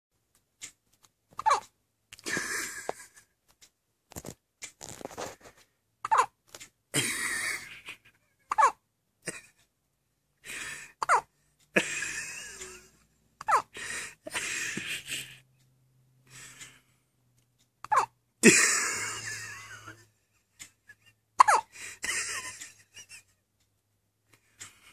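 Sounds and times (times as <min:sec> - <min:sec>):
baby hiccuping: 0:01.4 - 0:01.7, 0:06.0 - 0:06.4, 0:11.0 - 0:11.3, 0:17.8 - 0:18.1, 0:21.4 - 0:21.7.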